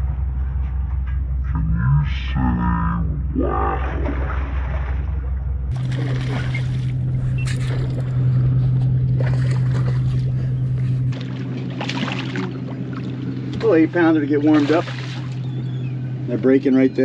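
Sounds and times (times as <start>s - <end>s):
boat engine running: 0.0s - 17.0s
water splashing against hull: 3.6s - 17.0s.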